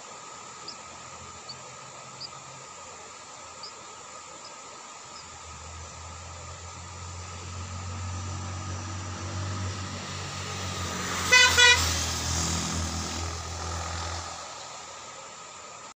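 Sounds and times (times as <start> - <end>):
vehicle engine drone: 0.0 - 15.9
vehicle horn toots: 11.0 - 12.2.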